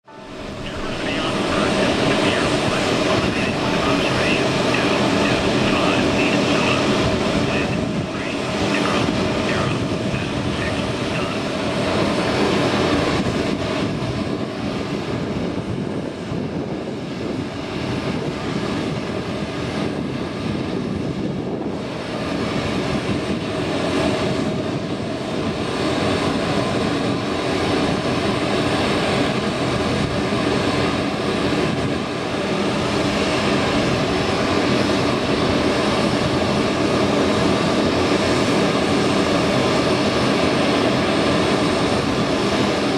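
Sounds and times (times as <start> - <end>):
aircraft turbine noise: 0.0 - 42.9.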